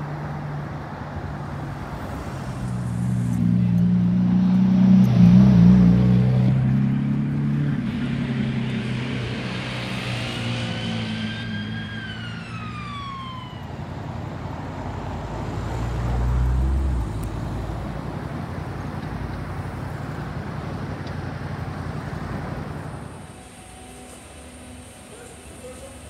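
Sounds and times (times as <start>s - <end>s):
deep engine rumble: 0.0s - 26.0s
engines idling: 0.0s - 26.0s
traffic noise: 0.0s - 26.0s
siren wailing: 9.7s - 14.5s.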